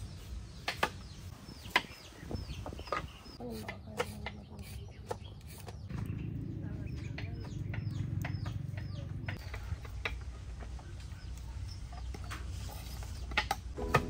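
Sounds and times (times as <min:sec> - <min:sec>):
chickens clucking and peeping: 0:00.5 - 0:13.8.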